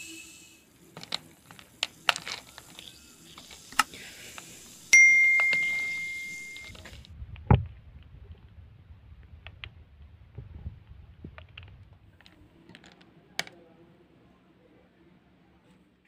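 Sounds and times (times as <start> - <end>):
notification bell ding: 5.0 - 6.7
spoon clinking against glass mug: 5.0 - 6.7.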